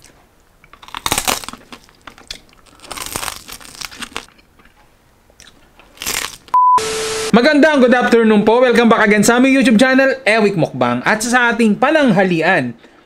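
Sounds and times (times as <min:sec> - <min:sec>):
crunching bites of crispy skin: 0:00.0 - 0:04.4, 0:05.4 - 0:06.5
chewing: 0:00.0 - 0:06.5.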